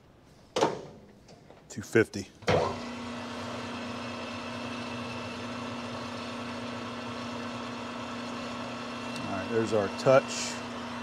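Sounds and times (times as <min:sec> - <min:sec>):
lathe motor humming: 0:02.7 - 0:11.0.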